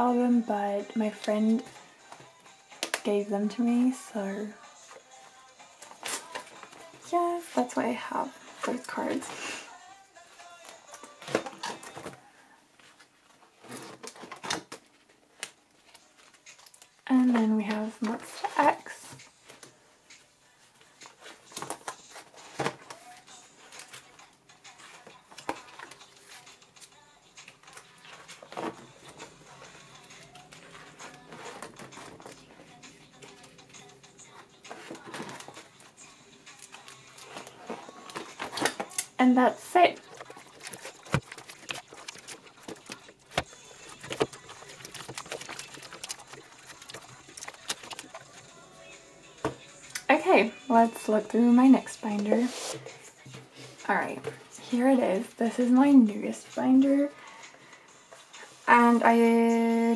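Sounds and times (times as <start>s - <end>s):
plastic pages rustling: 30.2s - 32.6s, 34.7s - 35.7s, 36.6s - 39.2s, 39.9s - 48.5s
plastic sleeves crinkling: 36.6s - 48.4s.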